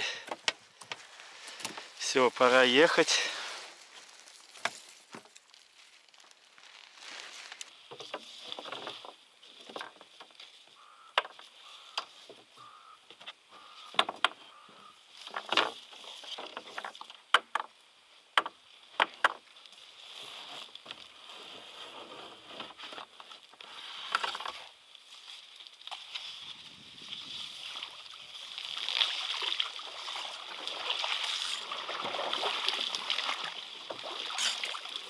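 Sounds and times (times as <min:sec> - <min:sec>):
rustling: 0:00.4 - 0:10.6
sharp clicks and knocks: 0:16.5 - 0:17.7.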